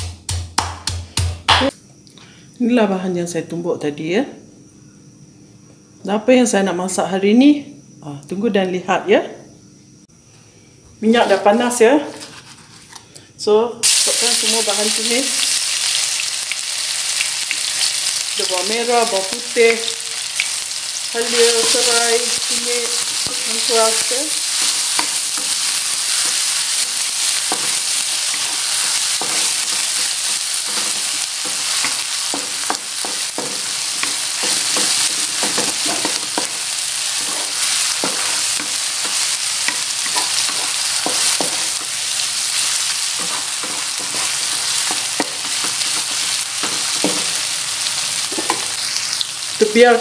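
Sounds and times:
wooden spatula scraping a pan: 12.1s - 13.0s
spice paste sizzling in oil: 13.8s - 50.0s.

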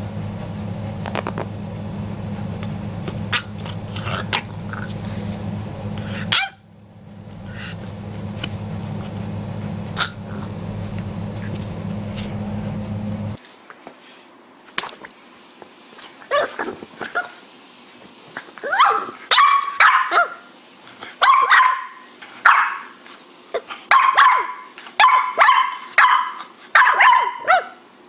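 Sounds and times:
puppy barking and yipping: 3.0s - 5.0s, 6.0s - 6.7s, 18.6s - 20.5s, 21.2s - 23.0s, 23.9s - 27.8s.

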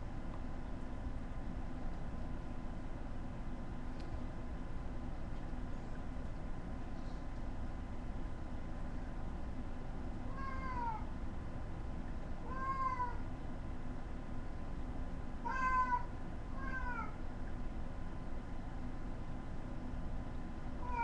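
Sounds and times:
steady low hum: 0.0s - 21.0s
cat meowing: 10.3s - 11.1s, 12.4s - 13.2s, 15.4s - 17.2s.

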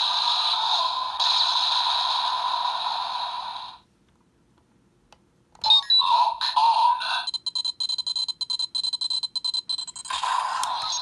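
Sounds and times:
hissing whoosh with high tone: 0.0s - 3.8s.

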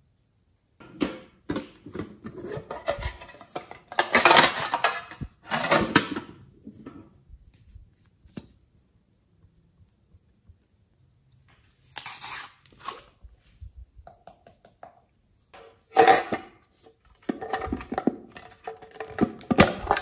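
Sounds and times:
metal tin lid scraping and clattering: 1.5s - 7.0s, 15.9s - 20.0s.

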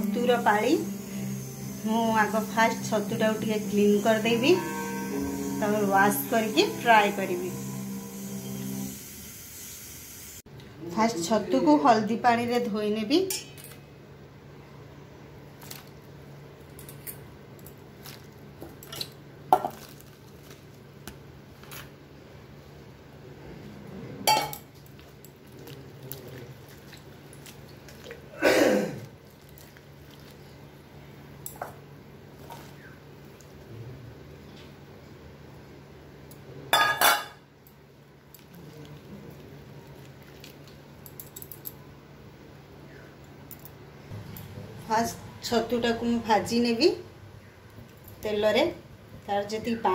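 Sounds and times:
metallic clanks from steel bowl: 24.3s - 24.7s, 36.7s - 37.4s
hand stirring mushrooms in water: 25.0s - 28.3s.

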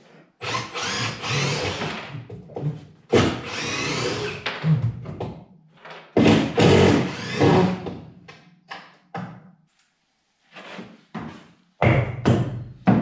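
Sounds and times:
power drill removing screws: 0.4s - 2.0s, 3.2s - 4.4s, 6.6s - 7.8s.

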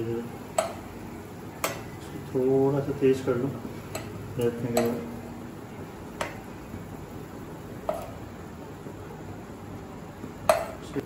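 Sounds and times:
steady faint hiss: 0.0s - 11.0s
spoon knocking on frying pan: 7.8s - 8.2s.

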